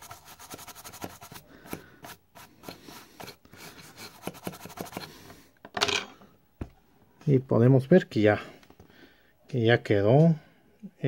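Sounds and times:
toothbrush scrubbing circuit board: 0.0s - 1.4s, 2.6s - 5.1s.

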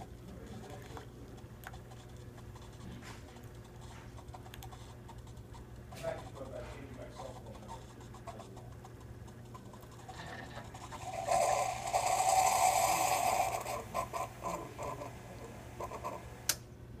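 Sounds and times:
steady low hum: 0.0s - 17.0s
coffee brewer rushing and sputtering: 6.4s - 16.5s.

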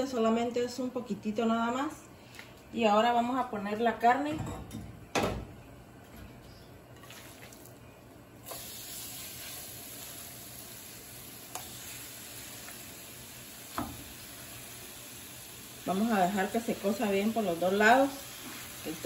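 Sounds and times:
meat sizzling in oil: 8.4s - 19.0s.

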